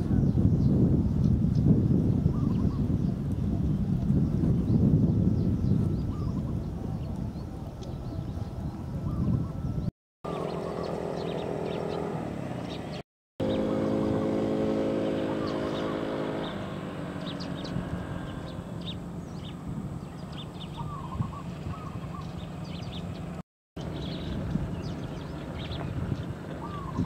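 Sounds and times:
small birds chirping: 0.1 - 14.0, 15.0 - 27.0
distant motor engine droning: 6.1 - 27.0.

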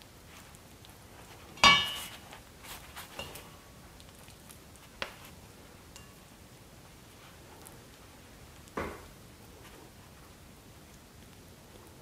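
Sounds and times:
spatula clinking on metal bowl: 1.6 - 2.1.

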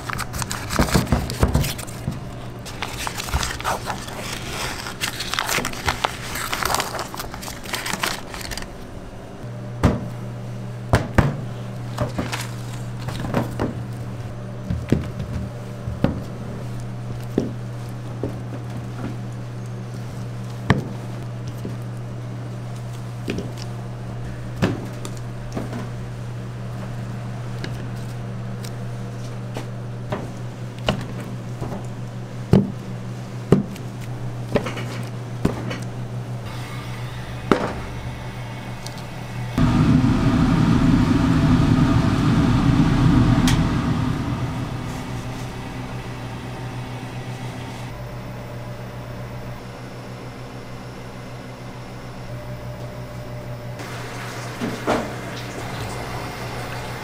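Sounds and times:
steady low hum: 0.0 - 53.9
loud deep rushing noise: 37.9 - 48.0.

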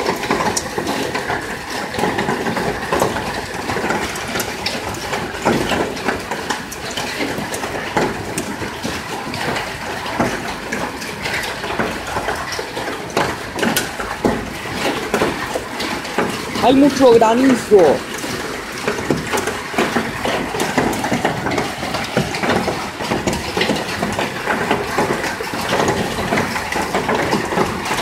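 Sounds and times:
hailstones clattering on surfaces: 0.0 - 28.0
heavy rain rushing: 0.0 - 28.0.

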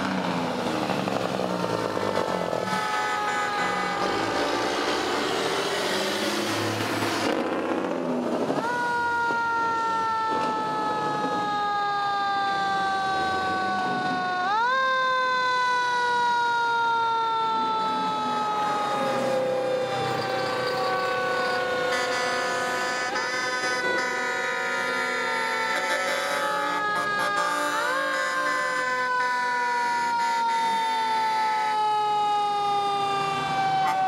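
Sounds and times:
truck passing with rushing noise: 0.0 - 8.6
fire truck siren wailing: 0.0 - 34.0.

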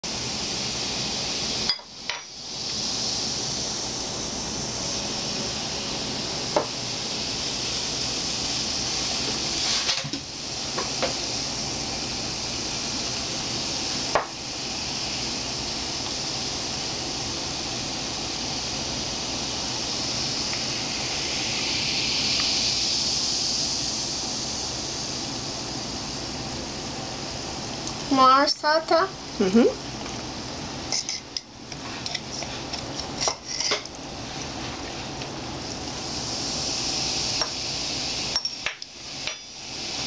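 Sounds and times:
fizzing hiss: 0.1 - 40.0
glass clinking: 1.7 - 2.3, 38.3 - 39.6.

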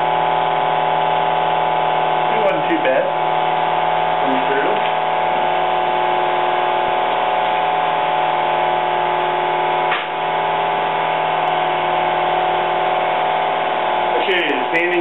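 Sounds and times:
sander running: 0.0 - 15.0.

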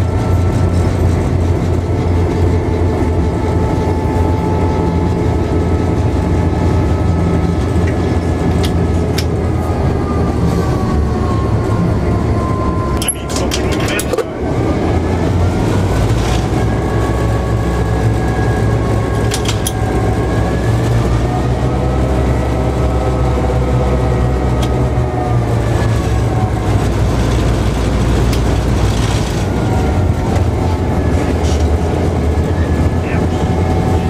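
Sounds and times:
faint whine: 0.0 - 20.8
diesel locomotive engine rumble: 0.0 - 34.0.

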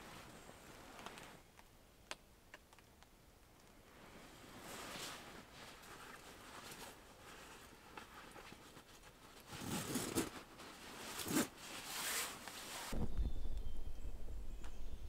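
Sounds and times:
sleeping bag rustling: 3.9 - 13.0.

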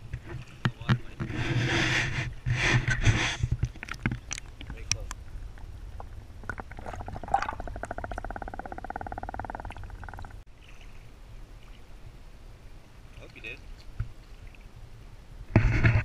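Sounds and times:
underwater river rumble: 0.0 - 16.0
rapid buzzing pulse: 6.8 - 10.4.

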